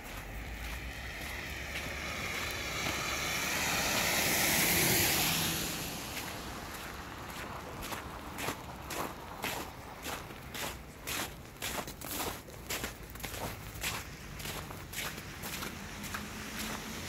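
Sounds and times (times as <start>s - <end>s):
car tyres hissing on wet road: 0.8s - 8.4s, 15.1s - 17.0s.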